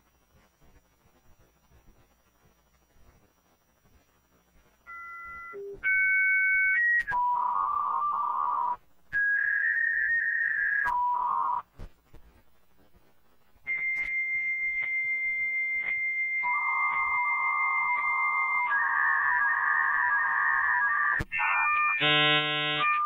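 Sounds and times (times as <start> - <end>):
warbling two-tone data signals: 13.6 - 23.0.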